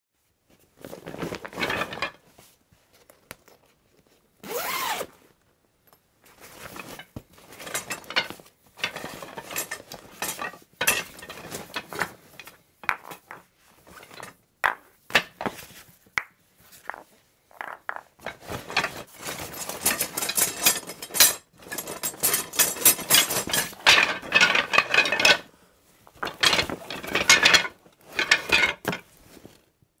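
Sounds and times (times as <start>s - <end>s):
gear clattering in a bag: 2.9s - 5.1s, 18.2s - 25.4s.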